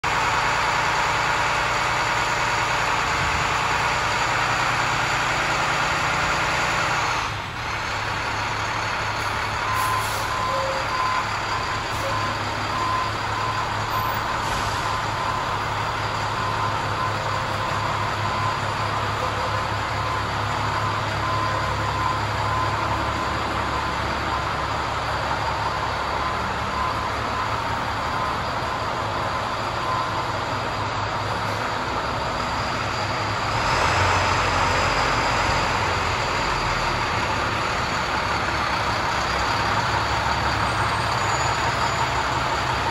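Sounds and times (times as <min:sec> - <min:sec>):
diesel truck engine idling: 0:00.0 - 0:42.9.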